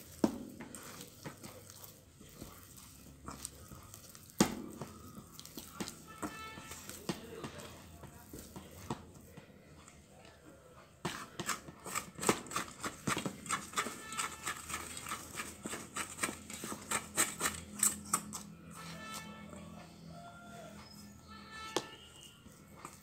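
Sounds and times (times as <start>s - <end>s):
spatula scraping dough in bowl: 0.0s - 9.3s, 10.9s - 19.4s.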